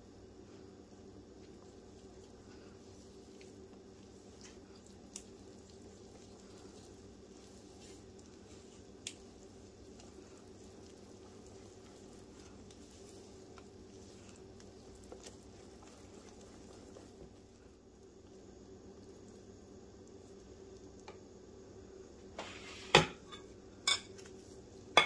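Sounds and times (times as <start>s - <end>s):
low steady hum: 0.0s - 25.0s
whisk squishing batter: 0.4s - 21.0s
whisk tapping bowl: 3.0s - 17.4s.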